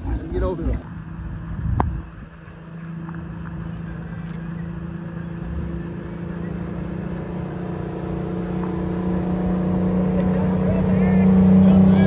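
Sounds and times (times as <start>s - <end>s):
car engine droning: 0.0s - 12.0s.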